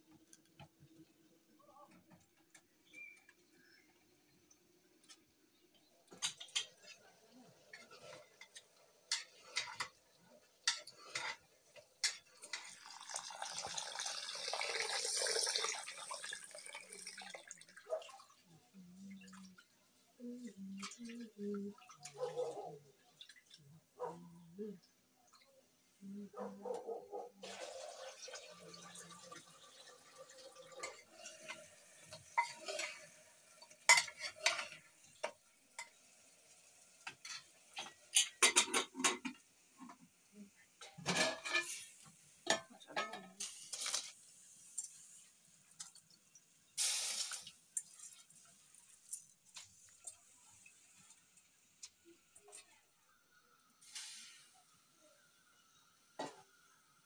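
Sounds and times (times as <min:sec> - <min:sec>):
food sizzling: 0:05.0 - 0:17.8, 0:27.4 - 0:57.0.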